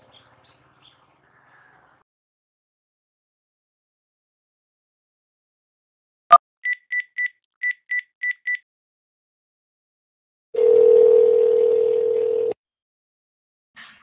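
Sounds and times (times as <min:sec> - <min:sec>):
phone keypad beeps: 0:06.7 - 0:08.6
phone ringing tone: 0:10.6 - 0:12.6.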